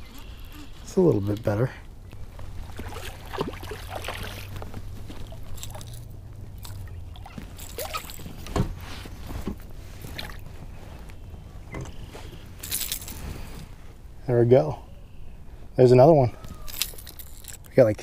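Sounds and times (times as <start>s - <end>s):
fish splashing in shallow water: 2.5s - 8.4s.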